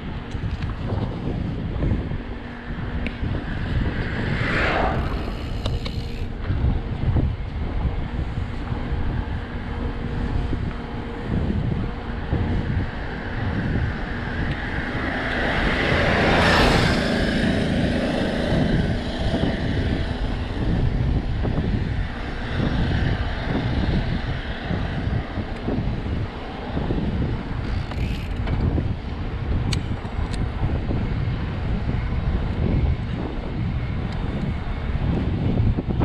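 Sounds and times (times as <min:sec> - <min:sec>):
bike tyres and frame rattling: 0:00.0 - 0:36.0
wind rushing over microphone: 0:00.0 - 0:36.0.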